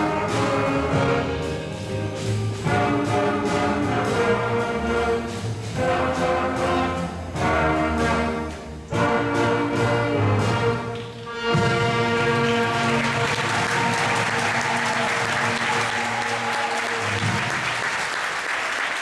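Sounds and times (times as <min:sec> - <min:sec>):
band playing blues: 0:00.0 - 0:17.5
audience applause: 0:11.8 - 0:19.0.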